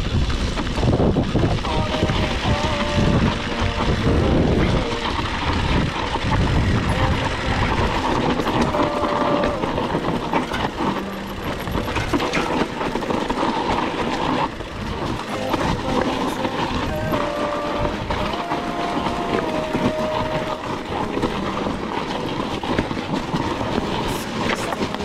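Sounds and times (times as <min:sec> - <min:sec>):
bike tyres rolling over dirt: 0:00.0 - 0:25.0
chain and frame rattling: 0:04.4 - 0:18.6.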